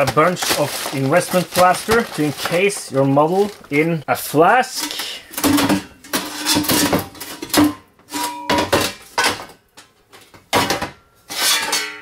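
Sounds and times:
metal flask clanking and scraping: 0:04.7 - 0:09.4.

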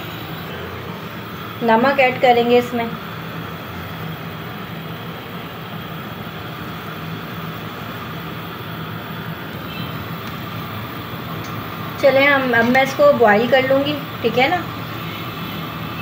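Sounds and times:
low drone: 0:00.0 - 0:06.1
rush of noise: 0:00.0 - 0:10.8
whirring hum: 0:00.0 - 0:16.0.

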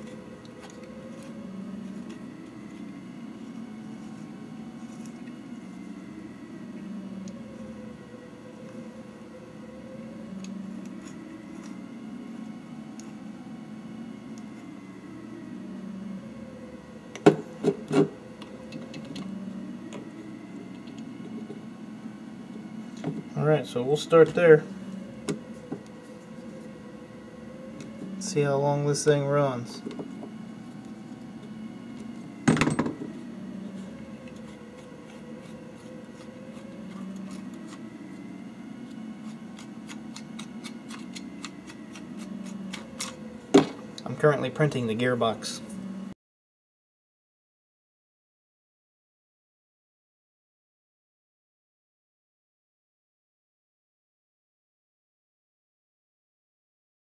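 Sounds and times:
steady low hum: 0:00.0 - 0:46.2.

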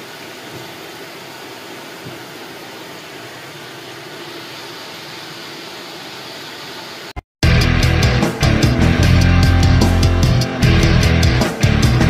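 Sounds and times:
jacuzzi pump and water jets: 0:00.0 - 0:07.2.

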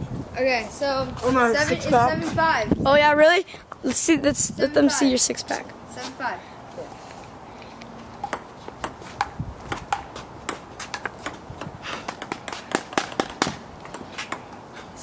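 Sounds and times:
table tennis ball ticking: 0:08.2 - 0:14.6.

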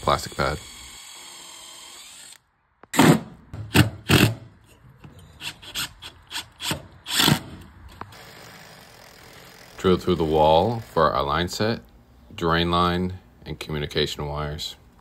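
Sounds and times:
screwdriver rasping screws: 0:00.0 - 0:02.4.

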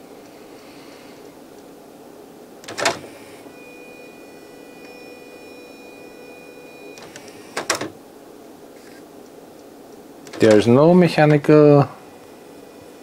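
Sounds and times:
high-pitched motor whine: 0:03.0 - 0:07.6, 0:10.4 - 0:13.0
disc tray click: 0:10.2 - 0:11.4
disc tray clack: 0:10.3 - 0:11.4.

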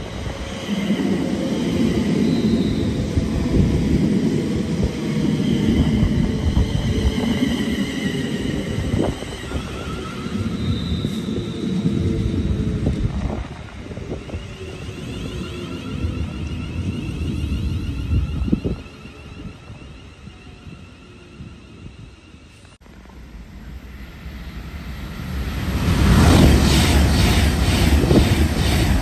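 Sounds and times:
train wheels rumbling on rails: 0:00.0 - 0:29.0.

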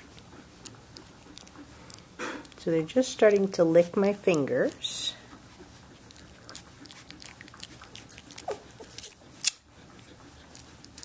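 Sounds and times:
puppy licking wet clicks: 0:00.0 - 0:11.0
puppy squeak: 0:08.4 - 0:09.6.

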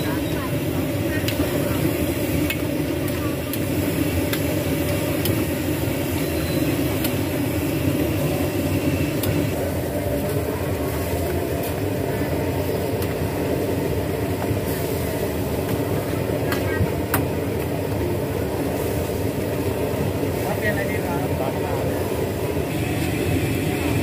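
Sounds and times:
gas wok burner roaring: 0:00.0 - 0:24.0.

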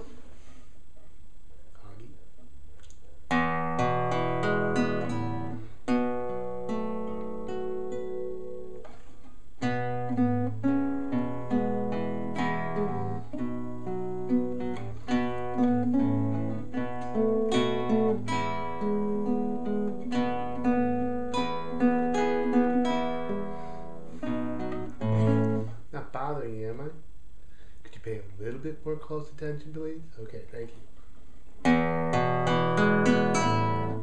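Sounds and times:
classical guitar playing: 0:03.3 - 0:25.9, 0:31.6 - 0:34.0.

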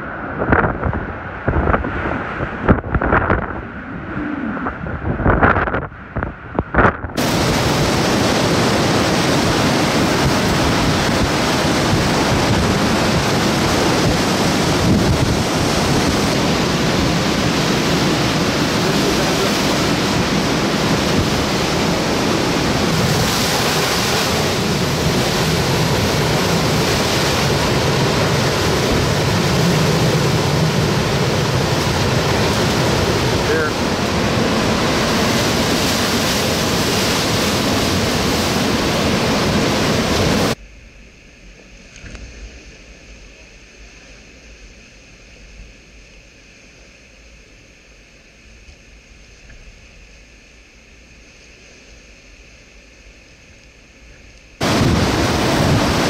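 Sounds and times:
driving rain: 0:00.0 - 0:40.6, 0:54.6 - 0:56.0
wind buffeting the microphone: 0:00.0 - 0:40.6, 0:54.6 - 0:56.0
hurricane wind roaring: 0:00.0 - 0:56.0.

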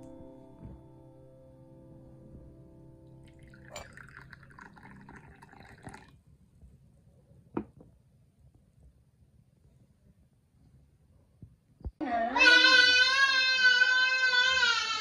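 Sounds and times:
tea pouring into a cup: 0:03.2 - 0:06.2
teapot clinking on tray: 0:03.5 - 0:05.9.

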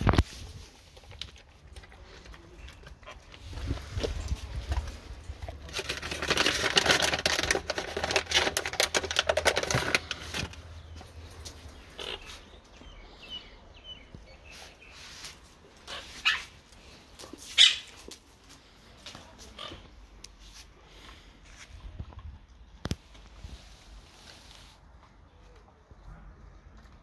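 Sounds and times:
plastic snack packet crinkling: 0:00.0 - 0:10.8.

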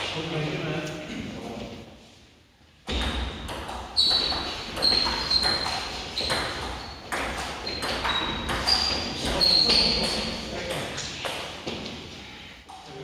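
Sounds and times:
table tennis ball pinging: 0:02.9 - 0:10.9.

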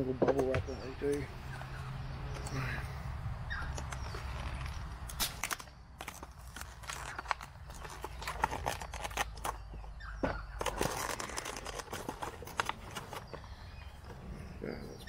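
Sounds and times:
bubble wrap crinkling: 0:04.2 - 0:09.8, 0:10.6 - 0:13.4.

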